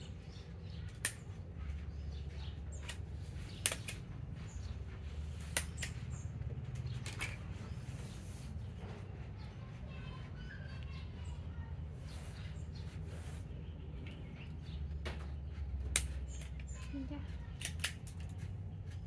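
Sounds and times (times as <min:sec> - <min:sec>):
sharp clicks: 0:02.8 - 0:04.1, 0:17.5 - 0:18.4.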